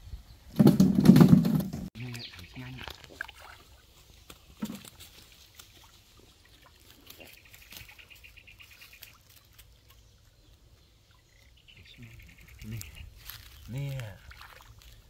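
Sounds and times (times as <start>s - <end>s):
hands splashing in shallow water: 13.8s - 15.0s.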